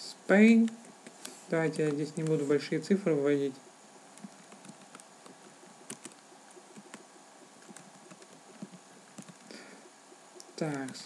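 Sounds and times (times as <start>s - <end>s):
low hiss: 0.0s - 11.0s
keyboard keys clicking: 4.2s - 7.0s, 7.6s - 9.5s, 10.4s - 11.0s.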